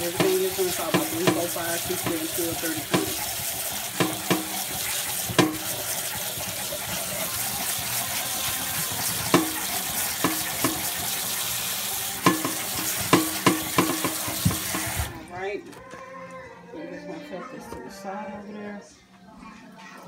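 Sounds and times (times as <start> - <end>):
tap water splashing: 0.0 - 15.2.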